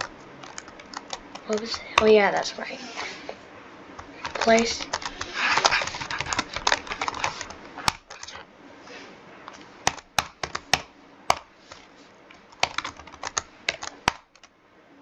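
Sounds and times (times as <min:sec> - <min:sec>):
computer keyboard typing: 0:00.0 - 0:02.2, 0:04.0 - 0:08.4, 0:09.8 - 0:11.8, 0:12.4 - 0:14.5.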